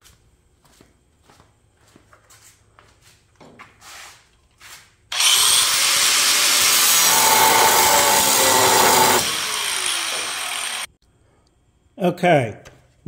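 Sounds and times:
angle grinder cutting metal: 5.1 - 11.0.

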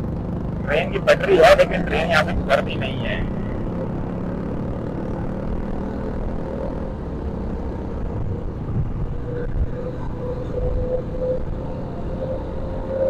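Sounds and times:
motorcycle engine running: 0.0 - 13.0
traffic noise: 0.0 - 13.0
wind rumble on microphone: 5.3 - 13.0.

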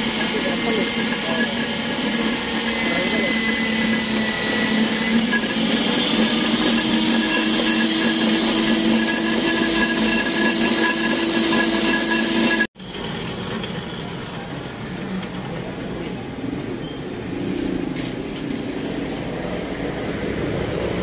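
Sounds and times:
pipe threading machine whining: 0.0 - 12.7.

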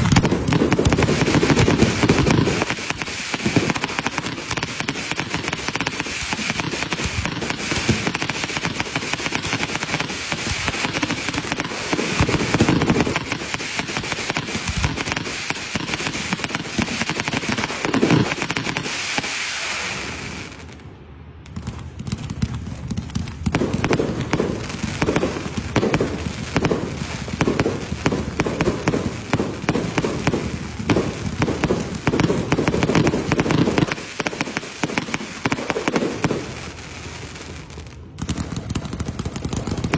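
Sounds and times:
steady hiss: 0.0 - 21.0
fireworks crackling and popping: 0.0 - 39.9
fireworks launching and bursting: 0.0 - 39.9.

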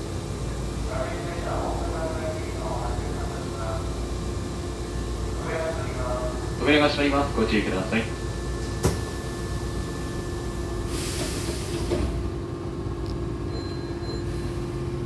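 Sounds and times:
steady train hum: 0.0 - 15.0
air hiss of closing doors: 10.8 - 12.3.

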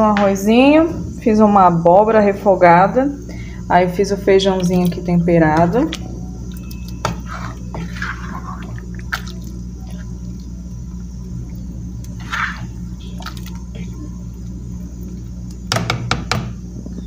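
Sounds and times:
steady low hum: 0.0 - 17.0
ladle stirring thick beans: 4.6 - 15.5.

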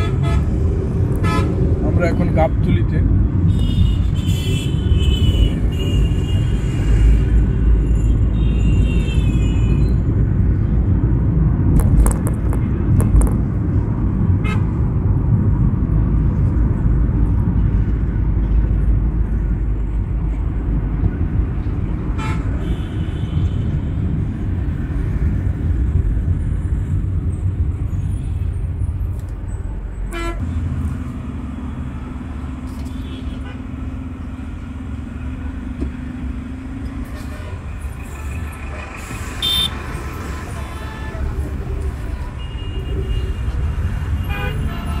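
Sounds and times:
car road and engine noise: 0.0 - 45.0
car horns honking: 39.4 - 39.8, 44.2 - 45.0.

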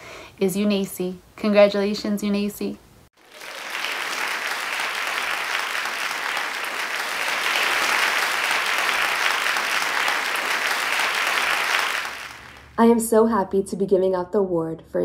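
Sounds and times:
crowd applause: 3.2 - 12.8.

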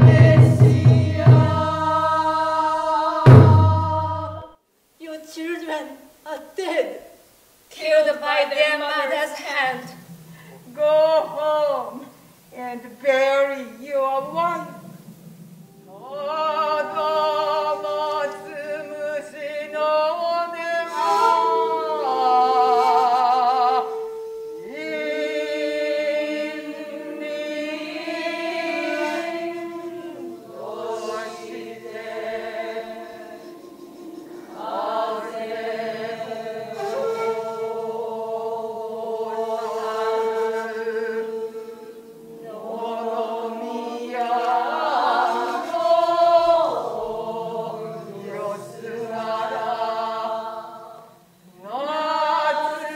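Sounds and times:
chorus of voices chanting: 0.0 - 4.6, 15.8 - 52.9.

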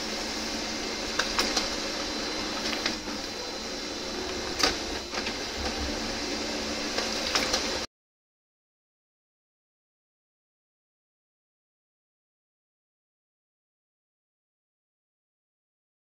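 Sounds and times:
printer paper feed whirring: 0.0 - 7.9.

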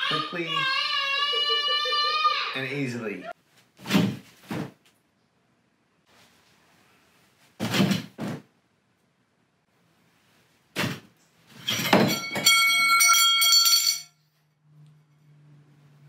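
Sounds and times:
short thuds: 3.8 - 4.8, 7.6 - 8.5
metal bar clattering and ringing: 11.6 - 14.2.

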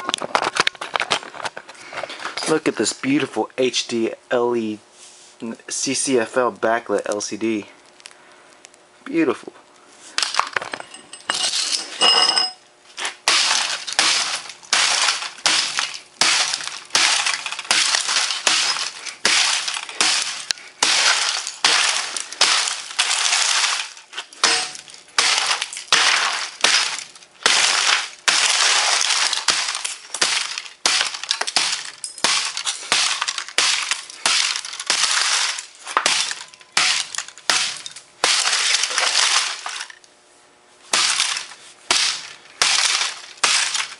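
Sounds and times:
glass shattering and clinking: 10.4 - 12.6, 13.4 - 40.0.

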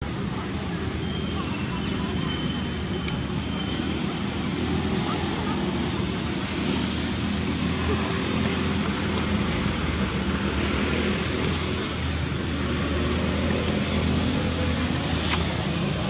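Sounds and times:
hiss: 6.2 - 7.8.

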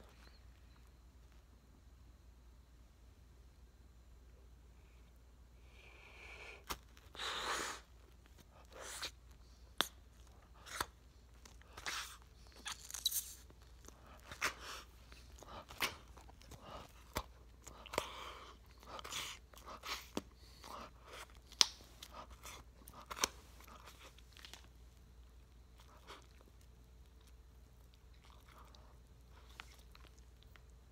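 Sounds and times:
wet gum chewing smacks: 8.0 - 24.8.

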